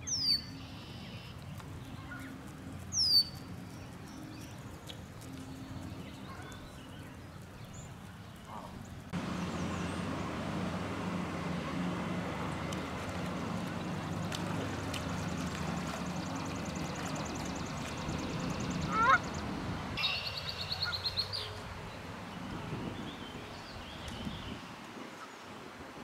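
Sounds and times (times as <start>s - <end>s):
steady low hum: 0.0s - 23.6s
geese calling: 8.5s - 21.6s.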